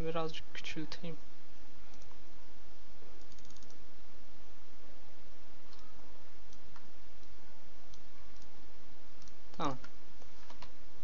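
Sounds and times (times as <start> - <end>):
low hum: 0.0 - 11.0
microphone hiss: 0.0 - 11.0
computer mouse clicks: 1.9 - 2.2, 3.2 - 3.8, 5.7 - 5.9, 6.5 - 8.5, 9.2 - 10.8.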